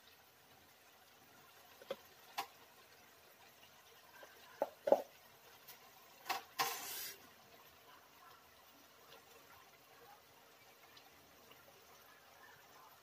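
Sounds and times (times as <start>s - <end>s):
brief hiss or rustle: 6.6s - 7.2s.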